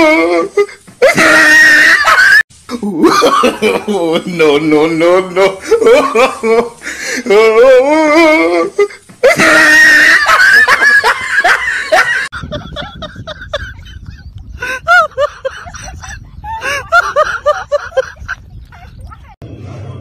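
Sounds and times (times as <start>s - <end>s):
man laughing and yelling: 0.0s - 19.4s.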